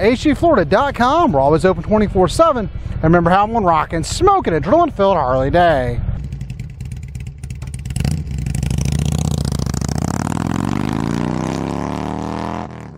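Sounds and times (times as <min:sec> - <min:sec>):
motorcycle engine revving: 0:06.2 - 0:12.9.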